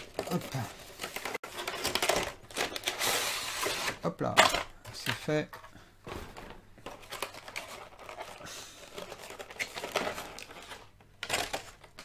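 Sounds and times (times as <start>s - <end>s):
plastic tray crinkling: 6.8s - 12.0s.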